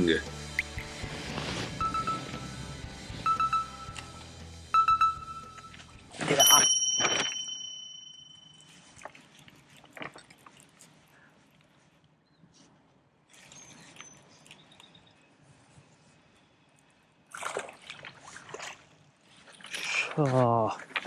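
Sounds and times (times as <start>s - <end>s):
fish splashing in water: 17.3s - 20.1s.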